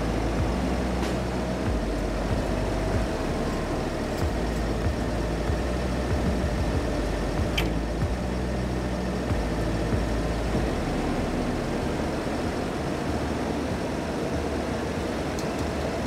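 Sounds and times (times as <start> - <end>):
diesel engine idling: 0.0 - 16.0
sharp click: 7.5 - 7.8.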